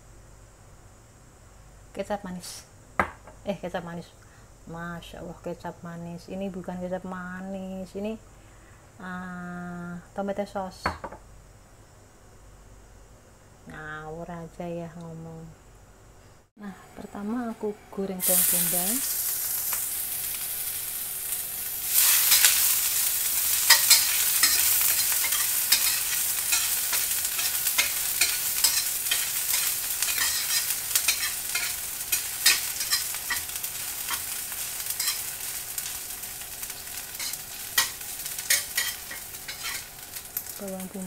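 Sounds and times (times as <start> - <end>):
onion sizzling in hot oil: 17.1 - 41.0
metal spatula scraping a wok: 23.4 - 34.3, 34.9 - 35.3, 37.1 - 39.9.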